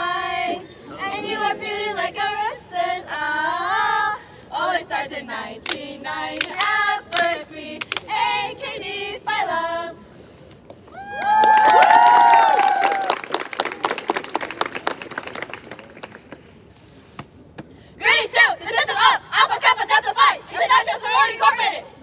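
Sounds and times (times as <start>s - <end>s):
women singing a chant: 0.0s - 10.0s, 18.0s - 21.9s.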